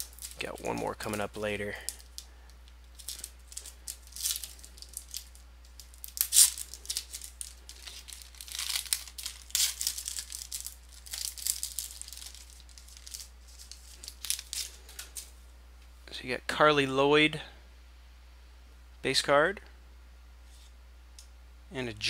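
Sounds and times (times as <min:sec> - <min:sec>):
foil wrapper tearing and crinkling: 0:00.0 - 0:02.2, 0:02.8 - 0:15.3.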